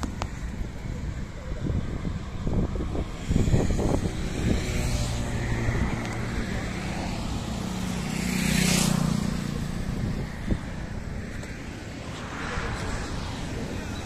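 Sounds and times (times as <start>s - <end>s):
motorcycle passing: 0.7s - 14.0s.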